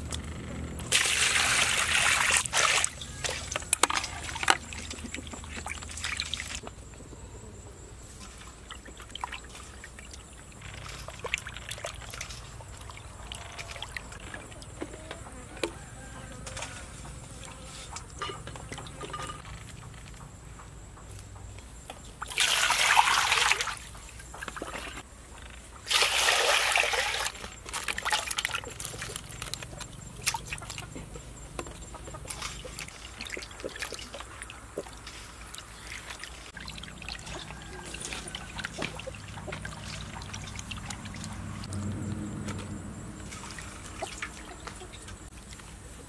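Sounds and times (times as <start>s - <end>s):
water pouring into metal basin: 0.9s - 5.1s, 25.9s - 29.6s
hands splashing washing fish: 0.9s - 6.6s, 22.2s - 25.0s, 25.9s - 31.0s, 31.8s - 41.7s, 43.2s - 45.6s.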